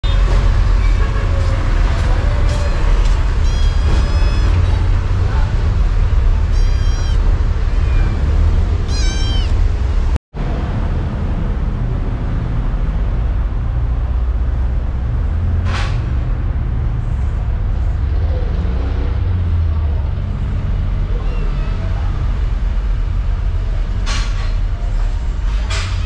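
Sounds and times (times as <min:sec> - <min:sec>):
low rumble: 0:00.0 - 0:21.0
kitten meowing: 0:02.6 - 0:04.9, 0:06.5 - 0:08.2, 0:08.8 - 0:09.6.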